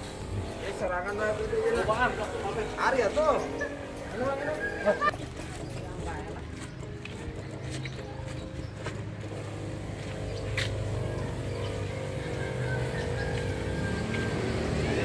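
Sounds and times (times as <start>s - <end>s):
small motor humming: 8.9s - 15.0s.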